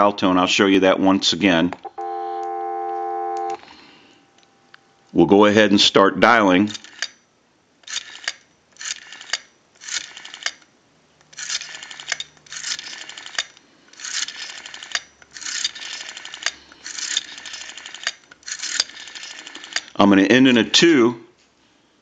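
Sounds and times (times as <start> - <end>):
rotary dial clicking: 6.7 - 7.2, 7.8 - 20.0.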